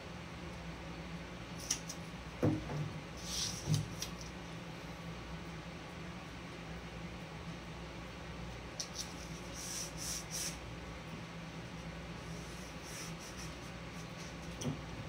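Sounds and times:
tape rubbed down by hand: 3.2s - 4.3s, 8.8s - 10.6s, 12.2s - 14.4s.

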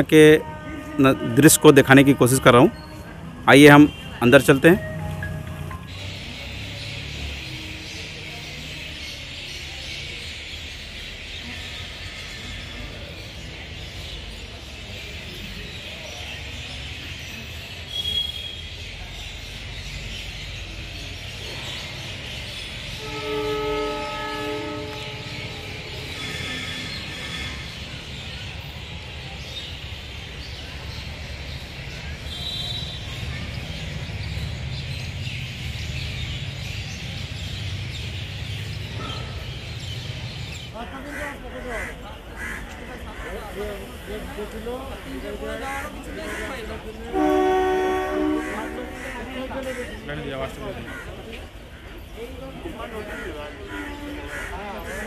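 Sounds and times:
train horn: 0.4s - 3.3s, 23.0s - 27.6s, 47.1s - 49.3s
high chirp: 3.9s - 6.6s.

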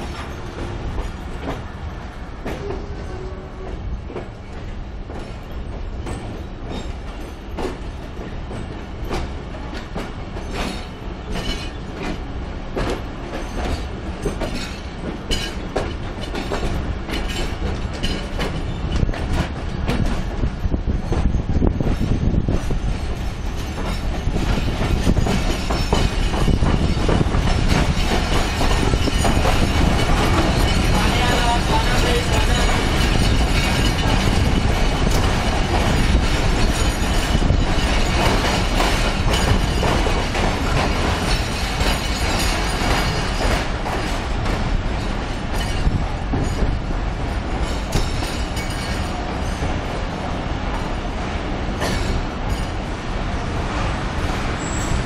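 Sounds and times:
train wheels rumbling on rails: 0.0s - 55.0s
wheel squeal: 54.6s - 55.0s.

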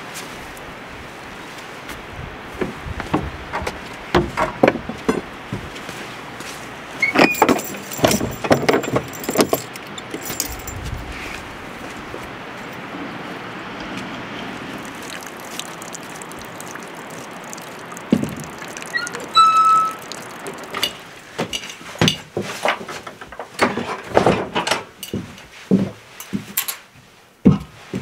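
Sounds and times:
outdoor background hiss: 0.0s - 28.0s
knocks and metallic clinks: 7.0s - 11.2s, 20.7s - 22.3s.

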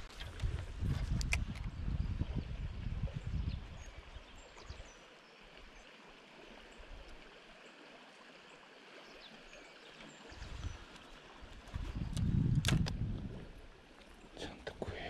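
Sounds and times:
low wind rumble on microphone: 0.0s - 4.9s, 10.3s - 13.8s
river current flowing: 3.7s - 15.0s.

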